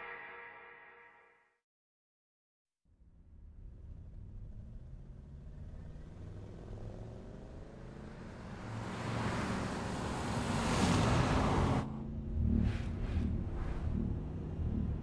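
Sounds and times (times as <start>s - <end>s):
car engine: 3.3s - 15.0s
road noise: 3.3s - 15.0s
vehicles rushing past: 3.8s - 15.0s.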